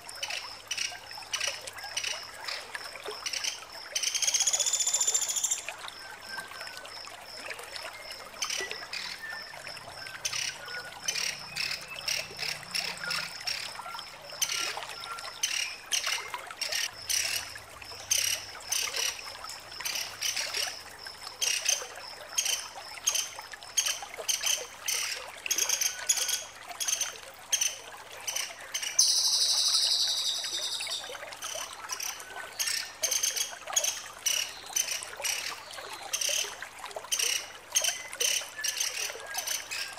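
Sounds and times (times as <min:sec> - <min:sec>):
woodpecker chattering call: 0:10.2 - 0:13.6, 0:28.3 - 0:31.0
woodpecker trill: 0:10.2 - 0:13.6, 0:27.6 - 0:31.0.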